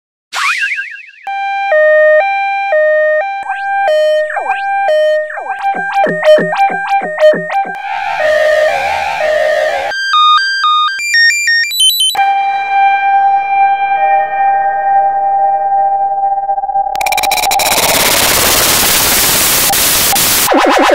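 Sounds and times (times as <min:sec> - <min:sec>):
two-tone ambulance siren: 0:00.4 - 0:16.9.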